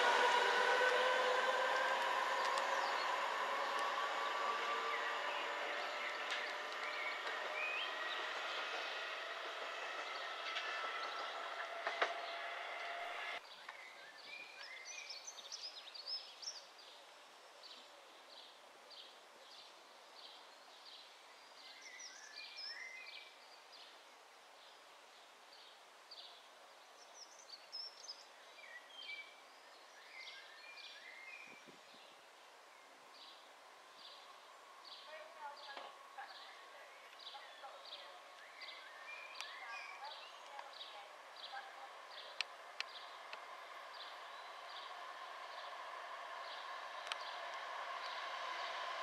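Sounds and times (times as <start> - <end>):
electric train whining: 0.0 - 13.4, 32.4 - 49.0
birds chirping: 0.0 - 17.0, 25.6 - 49.0.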